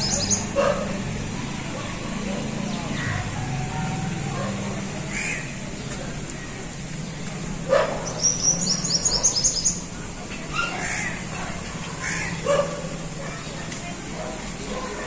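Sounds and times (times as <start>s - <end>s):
bird chirping: 0.0s - 0.6s, 7.0s - 9.9s.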